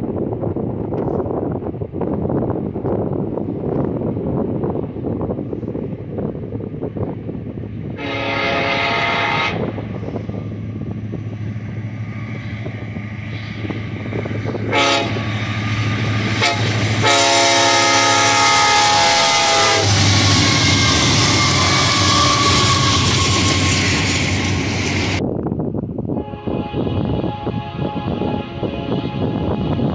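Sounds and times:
train rumbling past: 0.0s - 29.9s
train air horn blasts: 8.0s - 9.8s, 14.5s - 24.1s, 26.1s - 29.9s.

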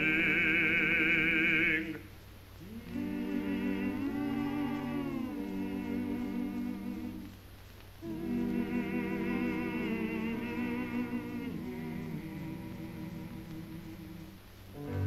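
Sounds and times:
slow film soundtrack music: 14.7s - 15.0s.

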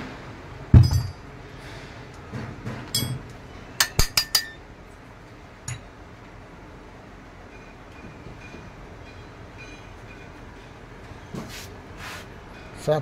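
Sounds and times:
metal tool clinking on metal: 0.8s - 1.2s, 3.0s - 3.2s, 3.8s - 4.6s.

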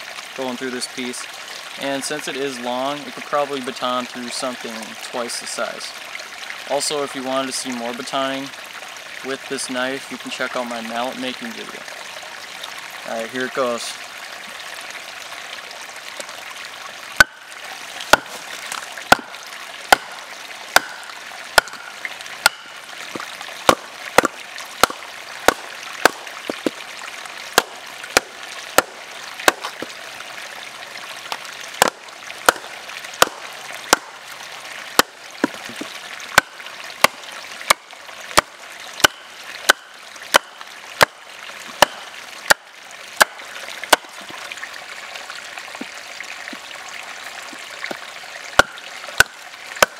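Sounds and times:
stream running: 0.0s - 49.9s
baton striking knife spine: 22.4s - 22.7s.

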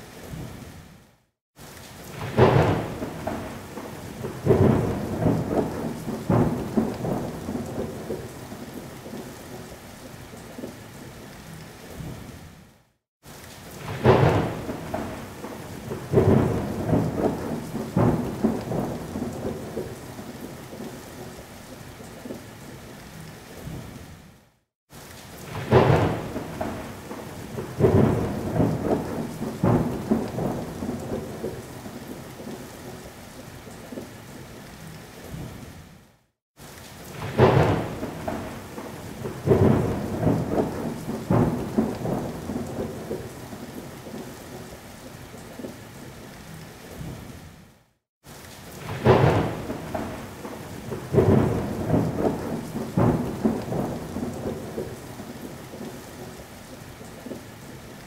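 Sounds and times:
heavy rain: 0.0s - 58.0s
thunder crack: 2.1s - 3.6s, 4.2s - 8.2s, 13.8s - 15.3s, 15.9s - 19.9s, 25.5s - 31.6s, 37.1s - 43.2s, 48.8s - 54.9s
rolling thunder: 2.1s - 9.2s, 13.8s - 20.9s, 25.5s - 32.6s, 37.1s - 44.2s, 48.8s - 56.3s.

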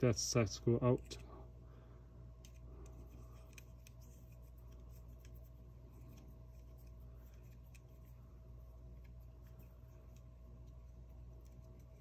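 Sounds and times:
steady low hum: 0.0s - 12.0s
hex key ticking and scraping: 2.4s - 12.0s.

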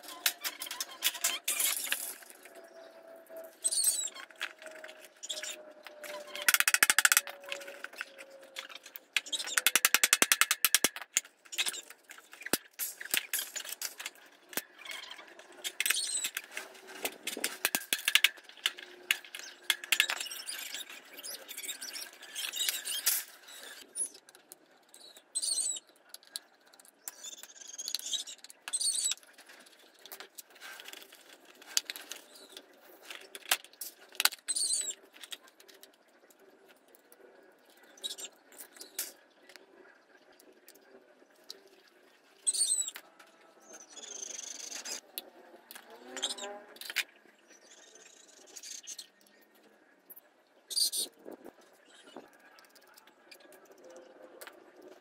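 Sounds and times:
short high squeaks: 3.3s - 10.2s
fan parts clicking and rattling: 5.8s - 21.2s.

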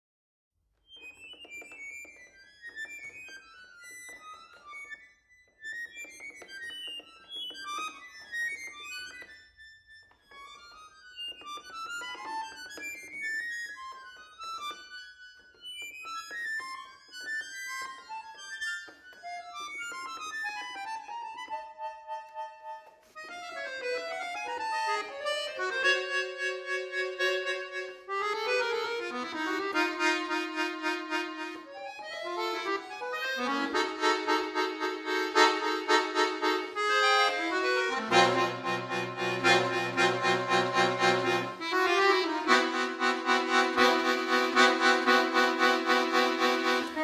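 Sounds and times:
solo accordion playing: 17.8s - 47.0s.

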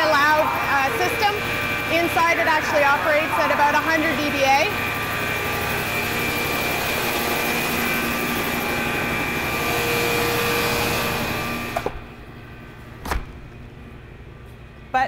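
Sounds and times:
machine noise with high tone: 0.0s - 12.9s
doors closing with knocks: 13.0s - 13.4s.

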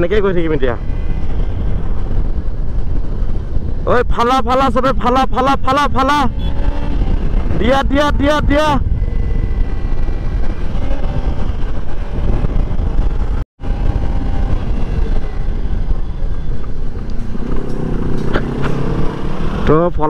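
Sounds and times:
motorcycle engine running: 0.0s - 20.0s
wind buffeting microphone: 0.0s - 20.0s.

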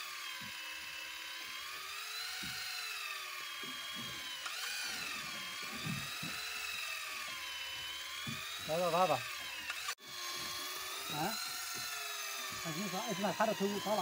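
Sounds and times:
electric fishing reel motor whine: 0.0s - 14.0s.

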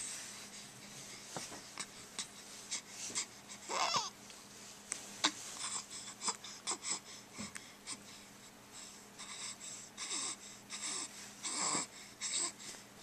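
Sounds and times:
baby grunting: 3.7s - 4.1s, 10.0s - 12.6s.

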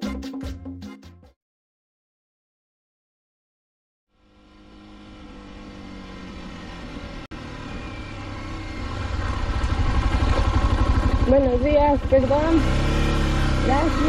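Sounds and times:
vehicle engine running: 4.1s - 14.0s.

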